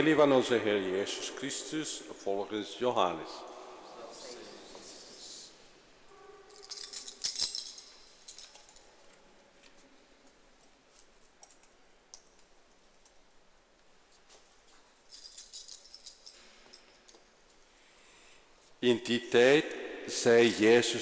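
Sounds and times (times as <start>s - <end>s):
metal chains jangling and clinking: 6.1s - 9.2s, 10.9s - 13.4s, 14.7s - 17.4s.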